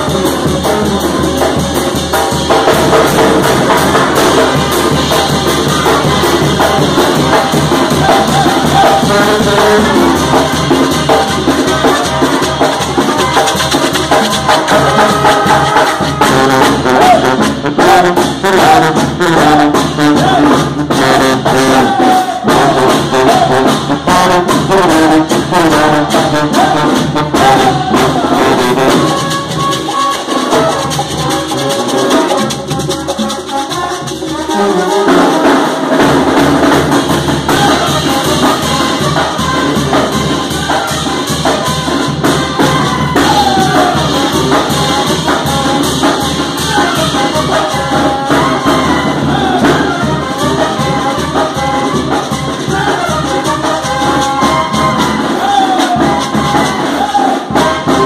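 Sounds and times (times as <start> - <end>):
congas and drums beat: 0.0 - 58.0
trumpets and trombones: 0.0 - 58.0.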